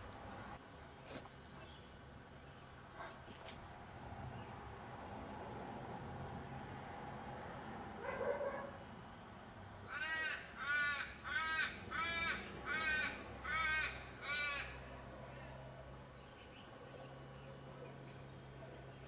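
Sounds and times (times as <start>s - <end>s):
crow cawing: 9.9s - 14.9s.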